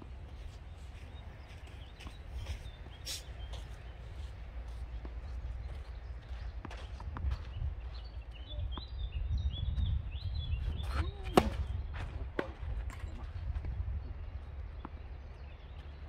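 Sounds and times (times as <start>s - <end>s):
small birds chirping: 0.1s - 12.0s, 13.9s - 16.0s
wind rumble on microphone: 3.8s - 16.0s
distant tennis ball hits: 11.2s - 13.0s.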